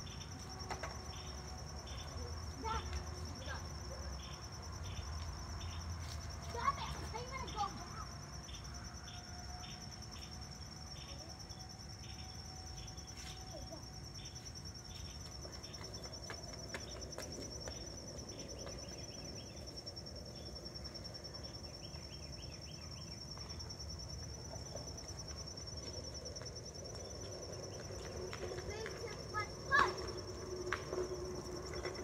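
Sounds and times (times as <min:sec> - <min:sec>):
insect chirps: 0:00.0 - 0:32.0
insects trilling: 0:00.0 - 0:32.0.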